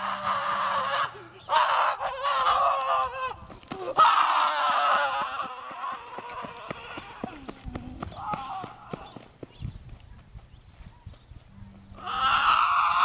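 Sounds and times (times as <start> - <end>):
man screaming: 0.0 - 7.0, 12.0 - 13.0.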